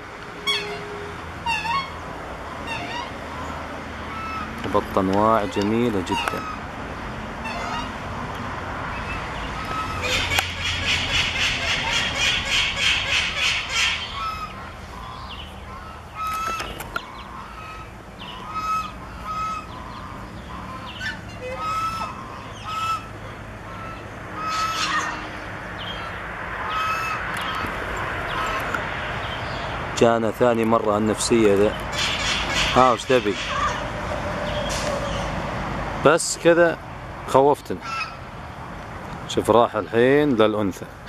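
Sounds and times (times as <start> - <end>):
waterfowl calling: 0.4 - 6.8, 7.4 - 8.3, 8.9 - 29.7, 31.7 - 35.4, 37.8 - 38.3.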